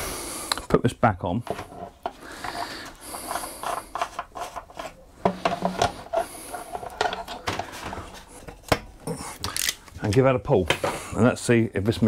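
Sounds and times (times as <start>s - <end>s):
plastic rubbing and scraping: 1.5s - 9.5s.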